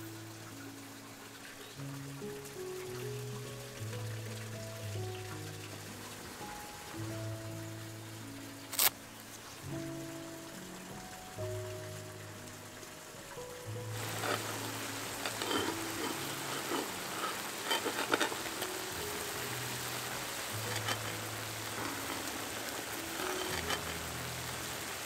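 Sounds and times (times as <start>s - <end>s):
soft background music: 0.0s - 25.0s
steady hiss: 0.0s - 25.0s
small crackles: 8.2s - 25.0s.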